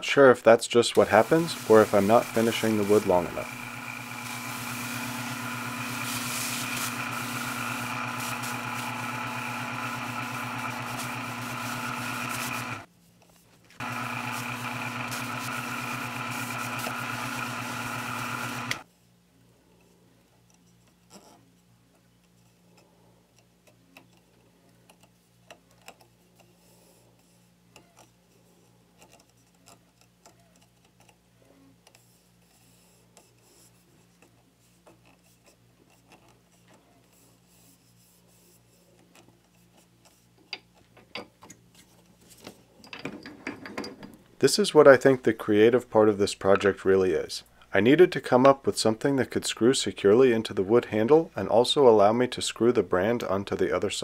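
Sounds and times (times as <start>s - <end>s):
lathe whirring with high whine: 1.0s - 12.9s, 13.8s - 18.8s.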